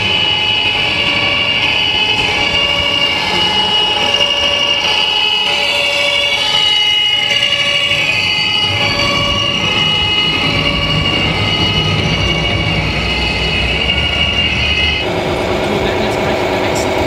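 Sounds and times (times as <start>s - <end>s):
model truck engine drone: 0.0s - 17.0s
steady whistling tones: 0.0s - 17.0s.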